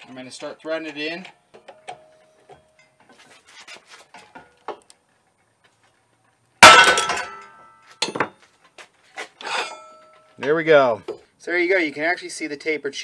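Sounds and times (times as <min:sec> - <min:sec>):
loud metallic bang with ringing: 0:06.6 - 0:07.5.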